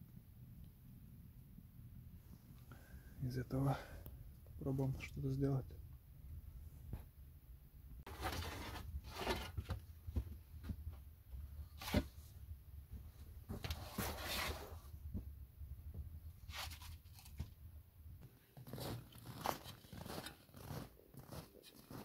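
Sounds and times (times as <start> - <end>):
rustling and scraping: 8.0 - 15.3, 16.3 - 17.6, 18.2 - 22.0.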